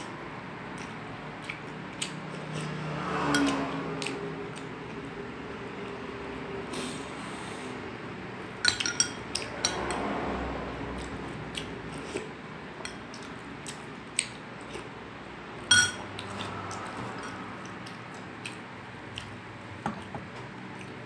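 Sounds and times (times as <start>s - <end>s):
eating noises: 0.7s - 5.1s, 16.1s - 21.0s
metal spoon clinking on dishes: 8.6s - 9.8s, 15.7s - 16.1s.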